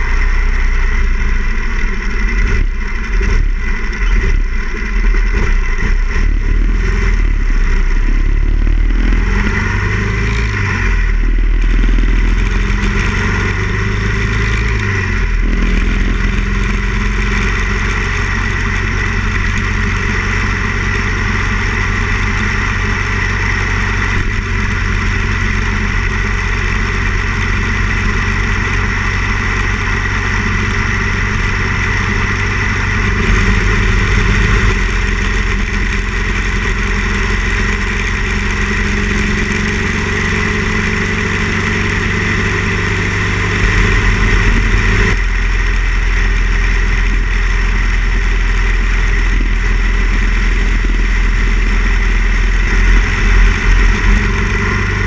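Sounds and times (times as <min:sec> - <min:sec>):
motorcycle engine: 0:00.0 - 0:55.0.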